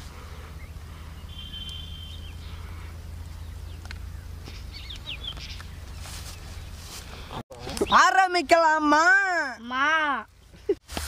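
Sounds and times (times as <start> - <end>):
low outdoor rumble: 0.0 - 11.0
high bird trill: 0.5 - 6.8
brief bird chirps: 1.2 - 2.5.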